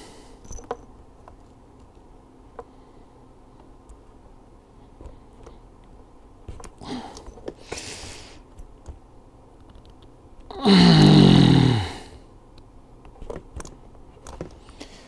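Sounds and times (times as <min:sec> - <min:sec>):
man groaning with effort: 0:10.5 - 0:12.1.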